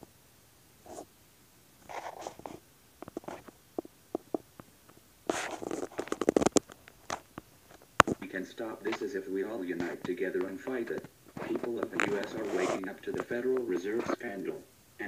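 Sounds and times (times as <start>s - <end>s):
rustling: 0.8s - 14.8s
rapid scraping clicks: 1.8s - 14.6s
scattered clicks: 5.3s - 9.1s, 9.7s - 14.4s.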